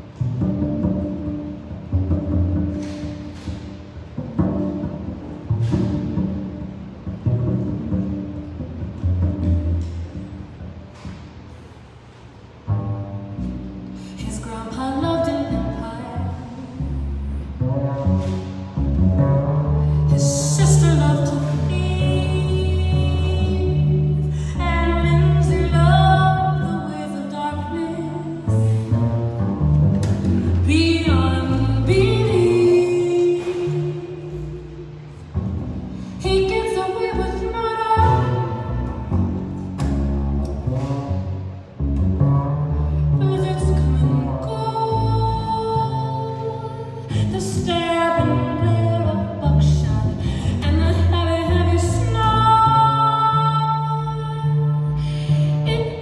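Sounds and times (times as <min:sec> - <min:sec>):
upright double bass: 0:00.0 - 0:56.0
woman singing: 0:14.2 - 0:16.9, 0:20.1 - 0:28.6, 0:30.6 - 0:34.6, 0:36.2 - 0:38.8, 0:43.2 - 0:56.0.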